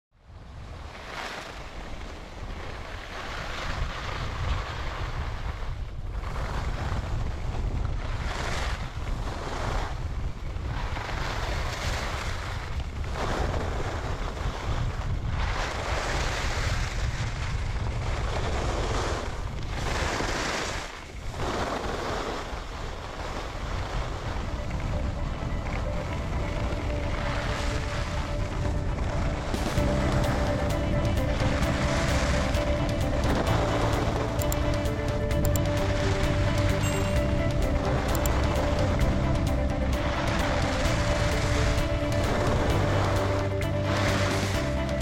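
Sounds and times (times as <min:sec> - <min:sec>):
wind rumble on microphone: 0:00.1 - 0:45.0
ski edges scraping snow: 0:18.2 - 0:23.9.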